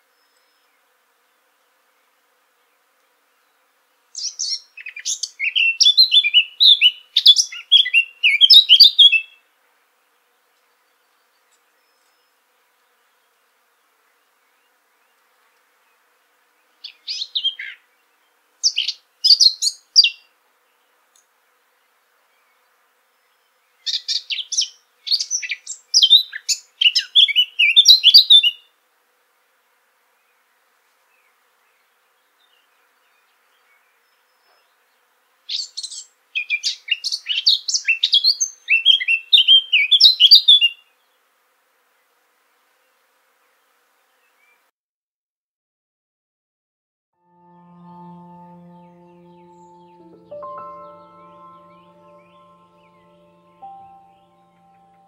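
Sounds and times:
bird warbling song: 47.7s - 55.0s.

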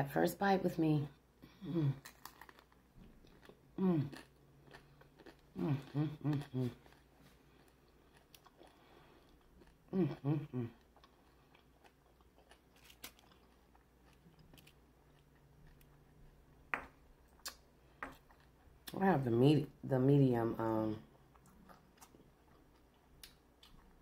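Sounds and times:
chewing crunchy taco: 1.6s - 19.0s, 21.0s - 24.0s.

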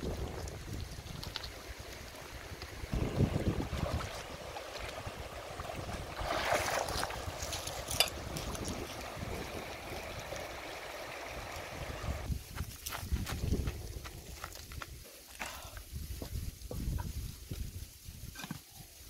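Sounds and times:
river rippling over stones: 0.0s - 12.3s.

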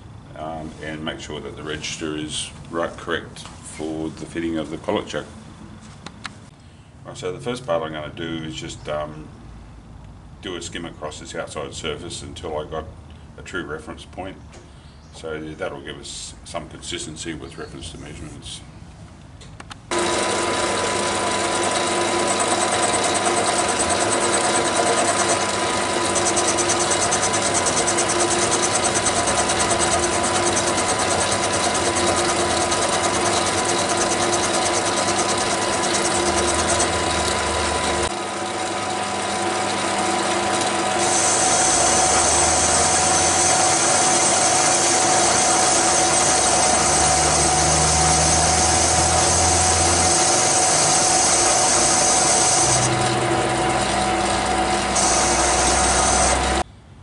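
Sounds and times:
lathe running with gear whine: 19.9s - 56.6s.

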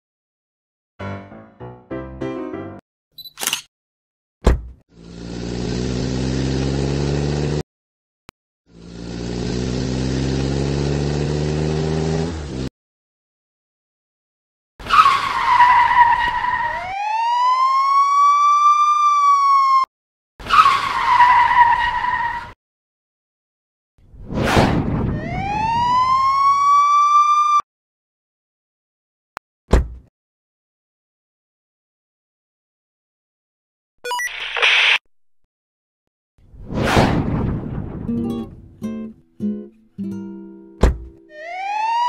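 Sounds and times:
car engine revving: 5.0s - 7.6s, 8.7s - 12.7s
siren wail: 14.9s - 19.9s, 25.1s - 27.6s, 41.3s - 42.0s.

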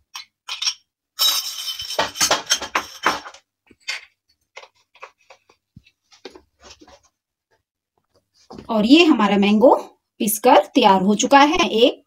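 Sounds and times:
clinks and knocks on metal jar: 0.1s - 4.0s.

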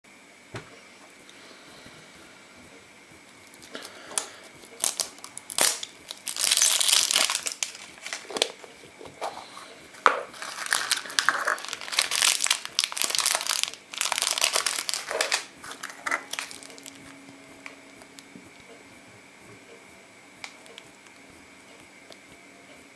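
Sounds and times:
plastic wrapping crinkling: 3.4s - 9.4s, 10.0s - 18.3s.

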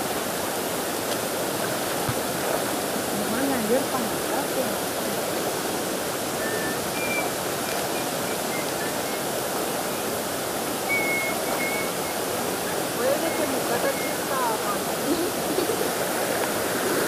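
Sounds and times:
river water flowing over rocks: 0.0s - 17.0s
faint high chirps: 6.4s - 9.4s, 10.8s - 14.6s.

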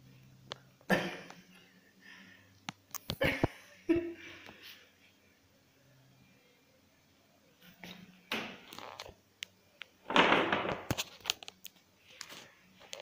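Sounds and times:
rustling and scraping: 10.1s - 13.0s.

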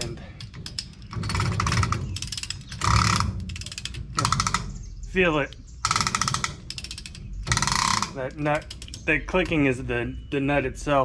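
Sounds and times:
torque wrench ratchet clicking: 0.4s - 4.7s, 5.8s - 9.1s.

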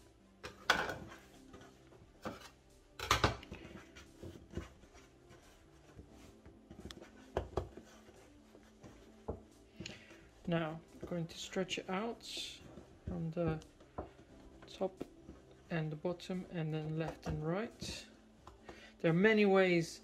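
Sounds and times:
hands patting dough on wood: 3.3s - 18.8s.

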